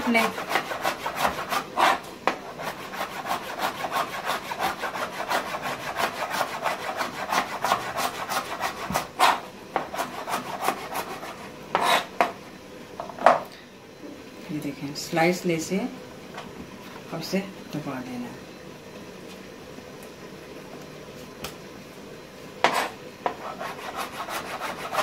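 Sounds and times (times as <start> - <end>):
knife shredding cabbage on board: 0.1 - 12.1, 22.7 - 25.0.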